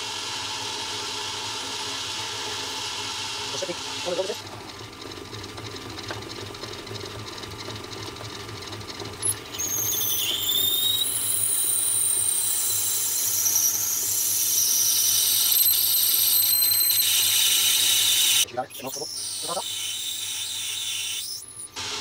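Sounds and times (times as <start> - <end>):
lathe humming: 0.0 - 22.0
drill squealing in metal: 9.2 - 21.8.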